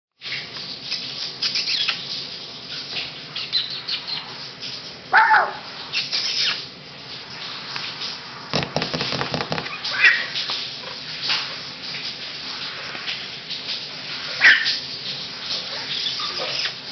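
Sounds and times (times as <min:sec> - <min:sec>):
shower hissing: 0:00.2 - 0:16.9
puppy yip: 0:05.1 - 0:05.6, 0:14.4 - 0:14.8
puppies rustling and scrabbling: 0:05.8 - 0:16.9.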